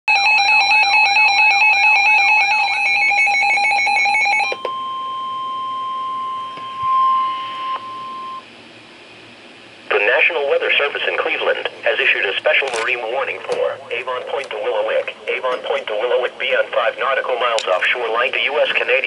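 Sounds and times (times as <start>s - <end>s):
pulsing electronic alarm beeps: 0.1s - 8.5s.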